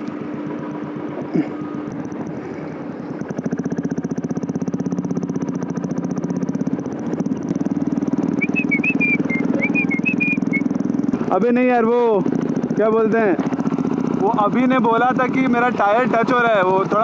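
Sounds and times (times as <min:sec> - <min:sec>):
motorcycle engine running: 0:00.0 - 0:17.0
short high chirps: 0:08.4 - 0:10.7.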